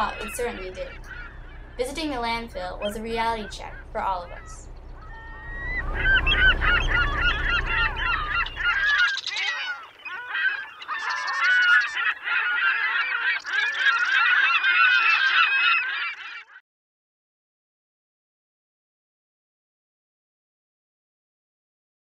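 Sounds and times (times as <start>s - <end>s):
low rumble: 0.0s - 9.1s
gulls squawking: 0.0s - 16.6s.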